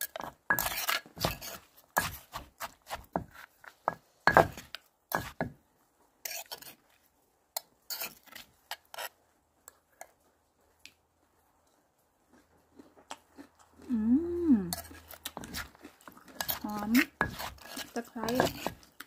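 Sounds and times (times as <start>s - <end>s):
pestle scraping in clay mortar: 0.0s - 5.6s, 6.2s - 6.8s, 7.9s - 9.2s, 14.7s - 19.0s.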